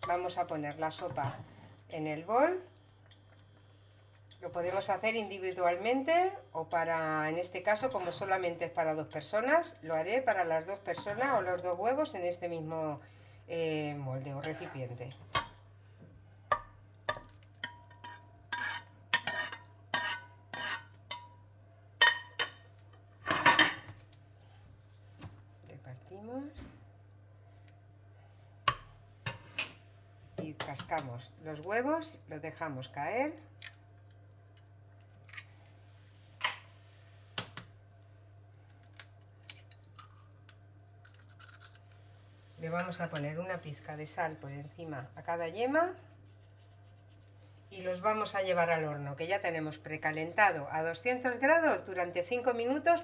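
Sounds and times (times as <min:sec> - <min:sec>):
egg cracking against ceramic dish: 0:16.5 - 0:21.4, 0:38.6 - 0:42.0.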